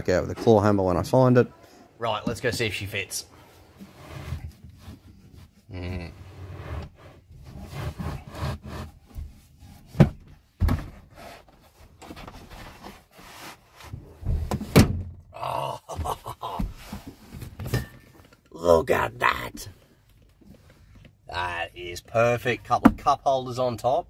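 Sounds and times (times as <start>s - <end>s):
speaker box knocking and thudding: 10.0s - 11.0s.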